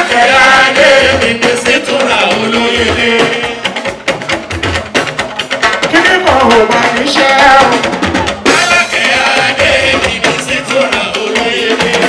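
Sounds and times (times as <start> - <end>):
man singing into a microphone: 0.0 - 3.7, 8.7 - 12.0
drums and percussion band: 0.0 - 12.0.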